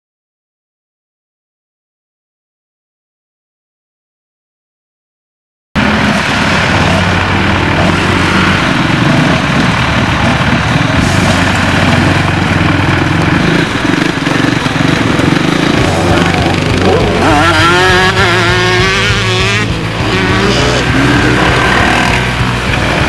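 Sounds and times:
vehicle engines running loud: 0:05.8 - 0:23.0.

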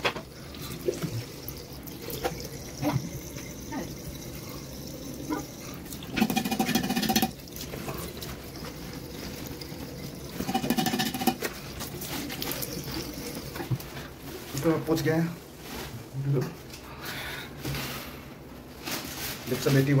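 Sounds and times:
water running and splashing: 0:00.0 - 0:15.0.

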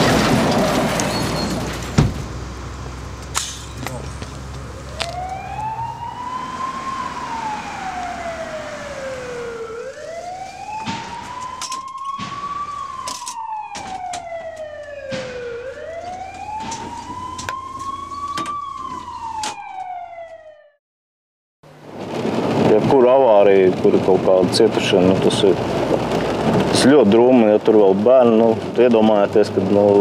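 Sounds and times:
ambulance siren wailing: 0:03.8 - 0:20.8.

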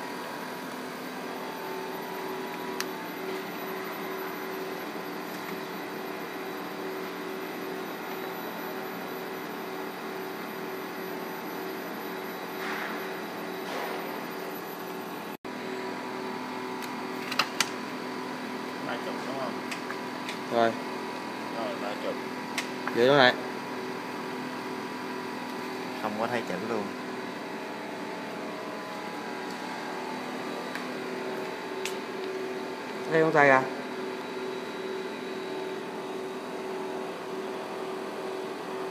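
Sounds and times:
machine whir and hum: 0:00.0 - 0:38.9
held machine tones: 0:01.0 - 0:15.9.

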